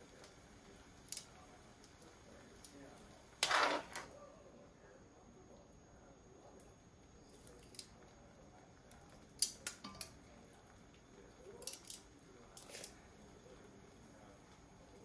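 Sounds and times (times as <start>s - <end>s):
metal tongs clicking on colander: 1.1s - 1.3s, 9.4s - 10.2s, 11.6s - 13.0s.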